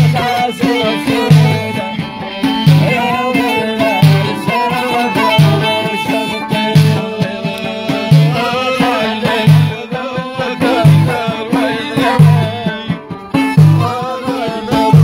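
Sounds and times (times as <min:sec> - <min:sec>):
fiddle: 0:00.0 - 0:09.5
low drum beat: 0:00.0 - 0:15.0
lute: 0:00.0 - 0:15.0.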